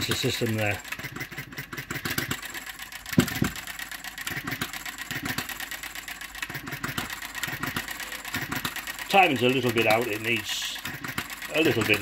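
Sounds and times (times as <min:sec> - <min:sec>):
model engine firing beats: 0:00.0 - 0:12.0
person talking: 0:09.1 - 0:10.9, 0:11.5 - 0:12.0.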